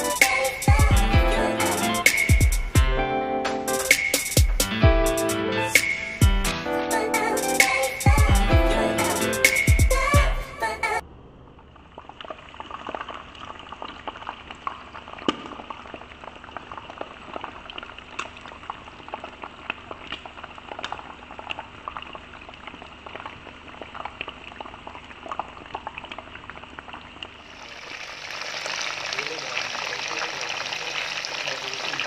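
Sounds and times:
oil crackles and pops: 11.6s - 32.0s
chicken sizzling in oil: 27.4s - 32.0s.

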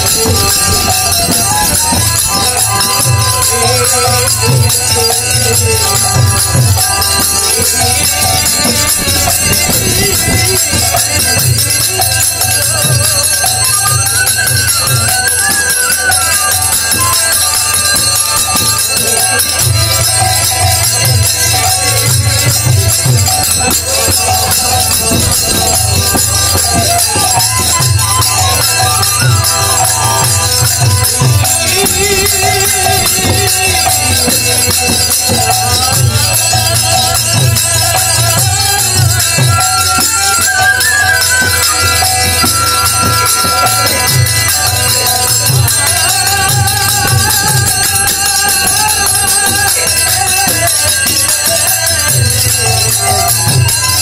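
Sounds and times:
hand cymbals clashing: 0.0s - 54.0s
harmonium notes: 0.0s - 54.0s
bamboo flute melody: 25.4s - 31.8s, 39.4s - 45.8s.

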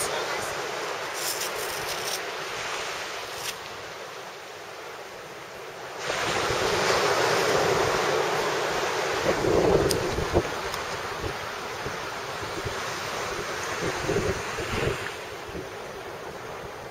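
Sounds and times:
surf: 0.0s - 16.9s
wind: 0.0s - 16.9s
wind buffeting microphone: 6.1s - 16.9s.

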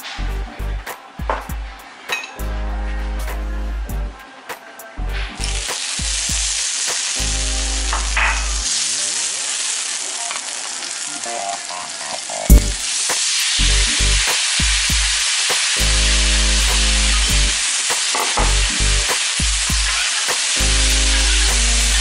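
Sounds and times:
meat sizzling on a hot griddle: 5.2s - 22.0s.

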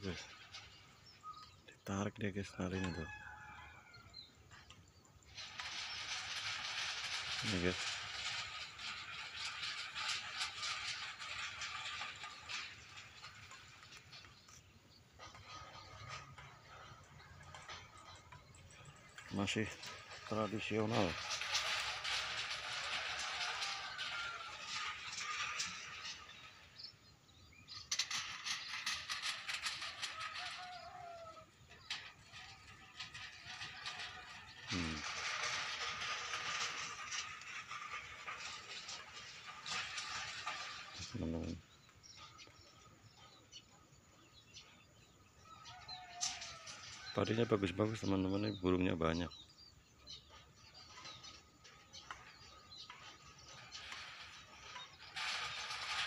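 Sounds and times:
tin cans rattling: 15.3s - 26.8s.

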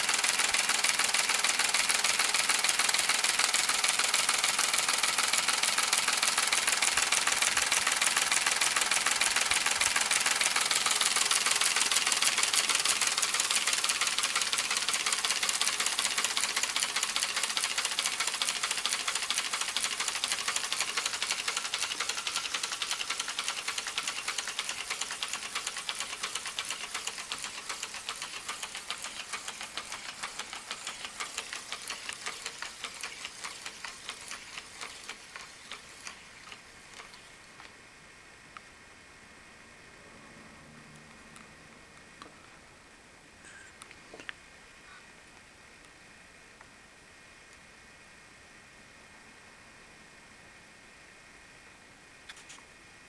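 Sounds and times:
rapid mechanical clatter: 0.0s - 37.3s.

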